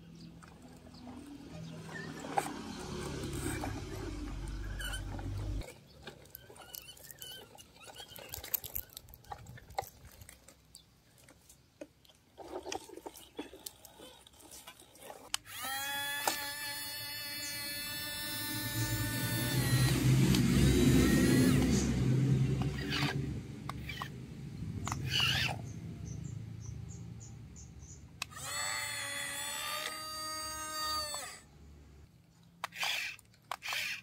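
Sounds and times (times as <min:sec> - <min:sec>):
engine-like rumble: 0:00.0 - 0:11.4, 0:17.4 - 0:28.3
plastic toys scraping on gravel: 0:00.5 - 0:21.9, 0:24.9 - 0:25.6, 0:32.6 - 0:34.0
electric motor whine: 0:01.3 - 0:05.6, 0:15.4 - 0:24.1, 0:28.2 - 0:31.5.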